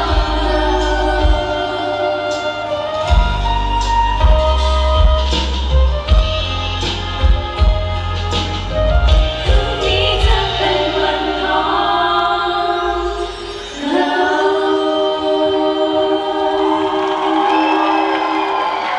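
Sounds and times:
group singing: 0.0s - 3.5s, 9.4s - 18.9s
pop backing track with beat: 0.0s - 18.9s.

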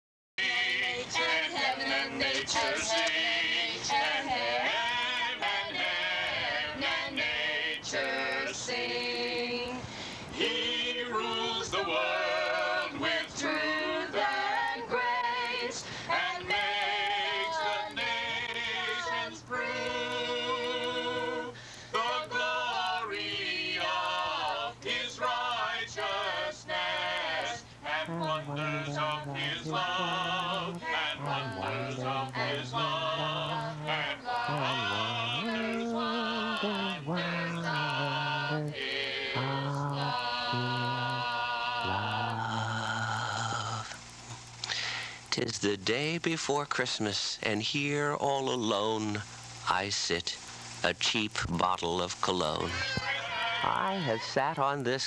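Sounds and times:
choir singing: 0.4s - 44.0s, 52.4s - 55.0s
bass voices singing: 0.4s - 55.0s.

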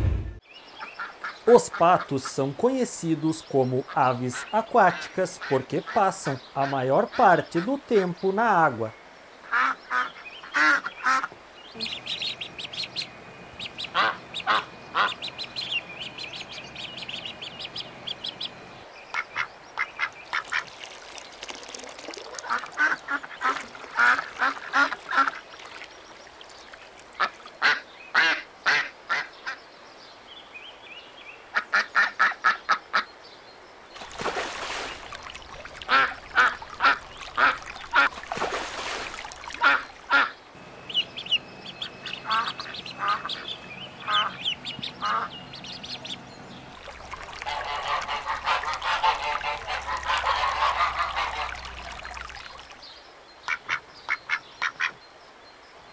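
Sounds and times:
ducks quacking: 3.7s - 8.2s, 9.5s - 20.7s, 22.1s - 29.6s, 34.0s - 52.8s.

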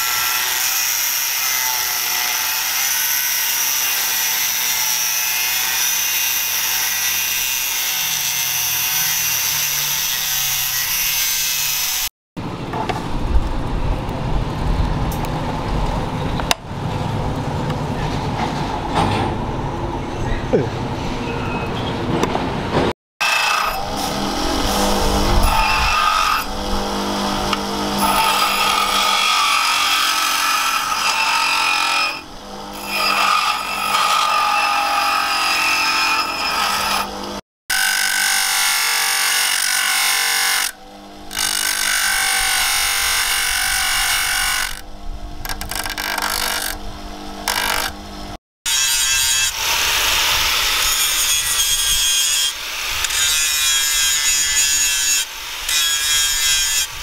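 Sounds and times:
angle grinder grinding steel: 0.0s - 12.1s, 23.2s - 48.1s, 48.7s - 57.0s
steel grinding on abrasive wheel: 48.7s - 57.0s.

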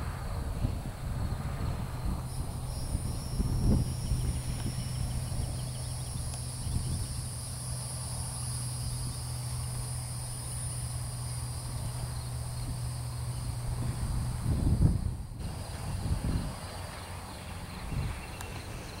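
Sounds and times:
steady low hum: 0.0s - 19.0s
insects chirring: 1.2s - 19.0s.

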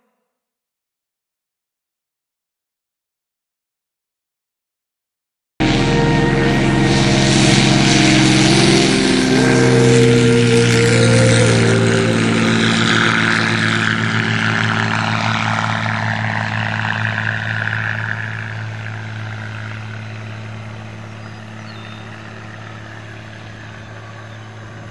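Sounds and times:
propeller plane engine drone: 5.6s - 24.9s.

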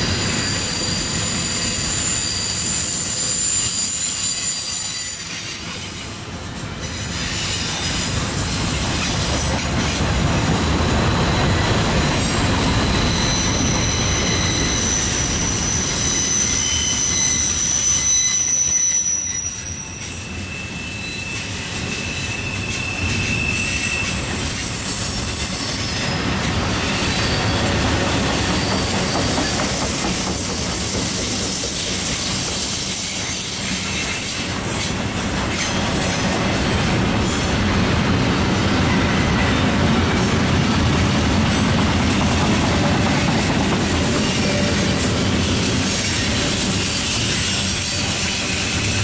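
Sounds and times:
high-pitched wheel squeal: 0.0s - 6.1s, 10.8s - 34.9s
train wheels rumbling on rail: 0.0s - 49.0s.

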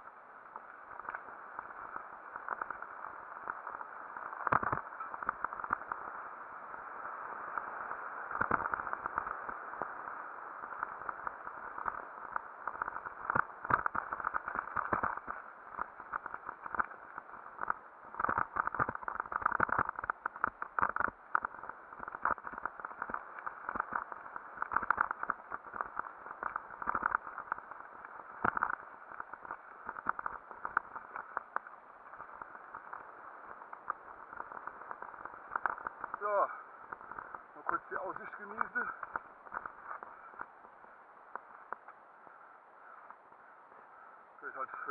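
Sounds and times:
bike rolling and wind noise: 0.0s - 44.9s
bike rattling over bumps: 10.6s - 40.5s.

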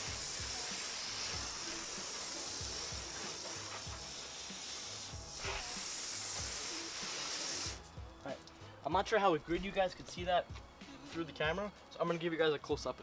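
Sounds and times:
hose spraying water on glass: 0.0s - 7.8s.

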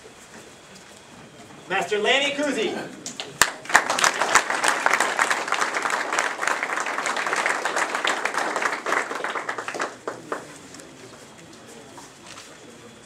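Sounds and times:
crowd applauding: 3.0s - 11.2s.

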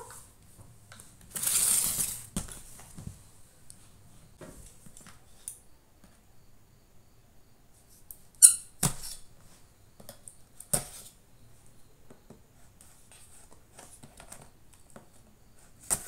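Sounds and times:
blade scratching cardboard: 1.3s - 2.2s
knife scraping packing tape: 1.3s - 2.3s.

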